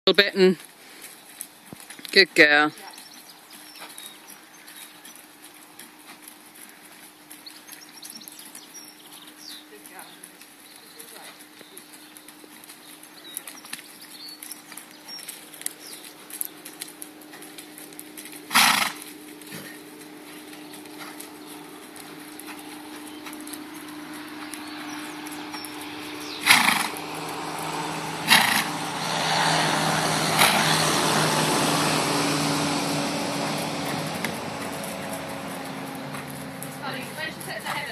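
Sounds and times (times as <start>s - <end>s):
soft hoofbeats: 0.8s - 37.9s
steady low hum: 11.6s - 37.9s
horse snorting: 17.2s - 37.9s.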